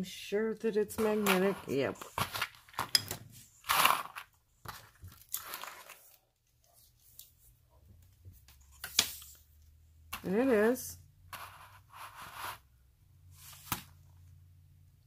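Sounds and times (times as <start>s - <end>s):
beaded necklace rustling: 0.9s - 6.8s.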